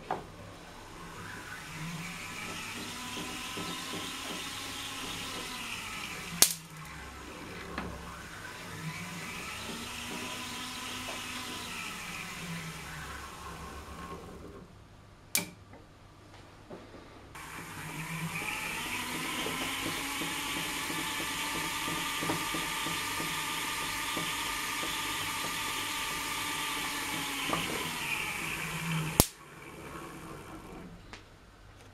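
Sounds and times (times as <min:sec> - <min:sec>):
electrostatic machine discs whirring: 0:00.6 - 0:14.6, 0:17.4 - 0:31.0
sharp spark crack: 0:06.4 - 0:06.7.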